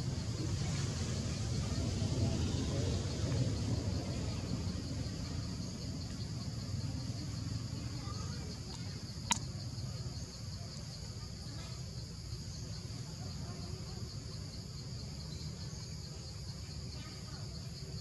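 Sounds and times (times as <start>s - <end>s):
insects chorus: 0.0s - 18.0s.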